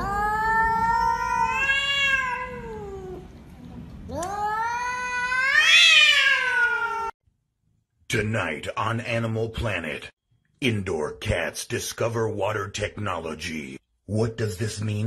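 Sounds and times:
cats yowling: 0.0 - 3.3, 4.1 - 7.2.

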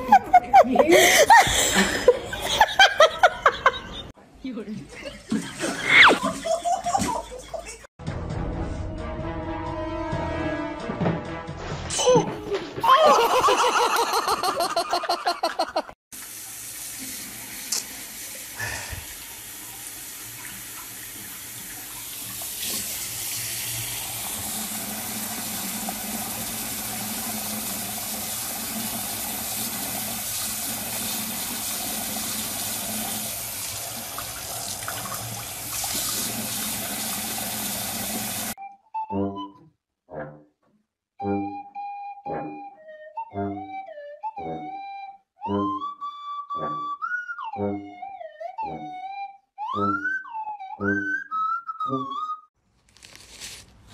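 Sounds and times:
tap water running into sink: 16.2 - 38.6.

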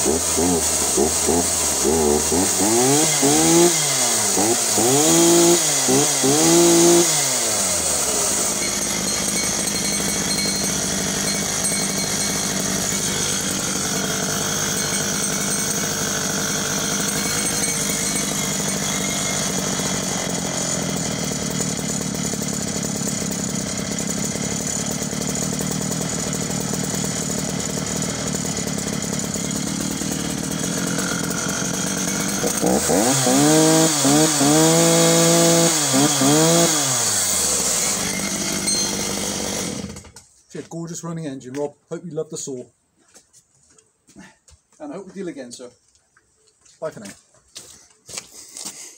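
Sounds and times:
chainsaw engine idling and revving: 0.0 - 40.8.

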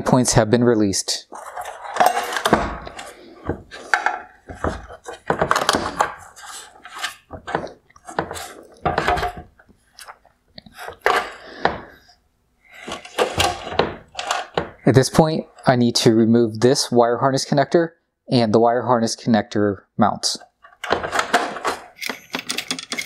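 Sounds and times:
plastic parts clicking and rattling: 1.3 - 12.0, 12.7 - 14.9, 20.4 - 23.0.

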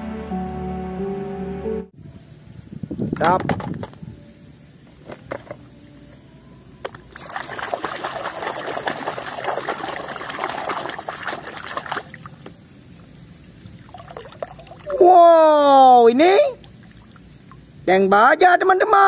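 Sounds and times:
hand scrubbing toy in soapy water: 7.2 - 12.5.

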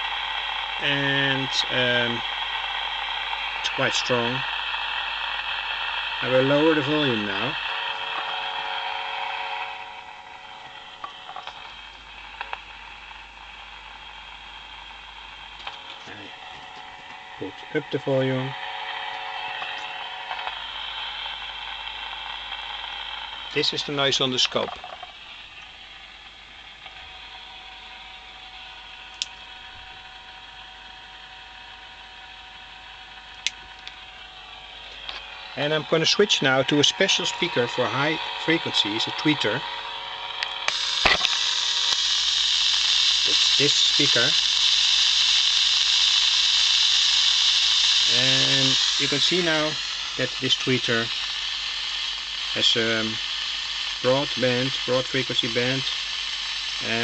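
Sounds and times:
noise generator hiss: 0.0 - 57.0
steady mains hum: 0.0 - 57.0
loudspeaker hiss: 0.8 - 2.4, 3.5 - 7.9, 16.0 - 18.6, 23.4 - 24.8, 34.6 - 39.8, 40.6 - 44.6, 47.9 - 57.0
small clicks: 29.1 - 29.4.

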